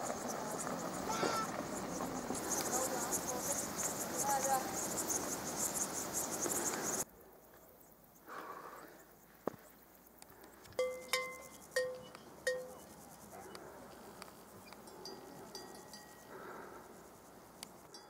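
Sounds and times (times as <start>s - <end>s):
insects buzzing: 0.0s - 18.0s
cattle bell clanking: 10.8s - 12.9s, 14.9s - 16.3s.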